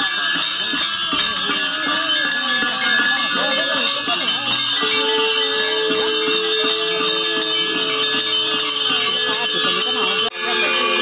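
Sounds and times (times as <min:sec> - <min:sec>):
brass bells ringing: 0:00.0 - 0:11.0
crowd voices: 0:00.0 - 0:11.0.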